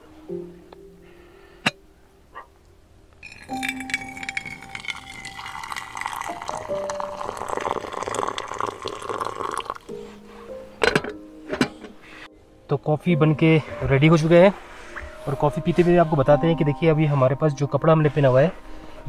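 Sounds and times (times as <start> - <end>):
soft background music: 0.0 - 19.0
kettle clinks: 3.2 - 9.6
water pouring into a mug: 3.2 - 9.9.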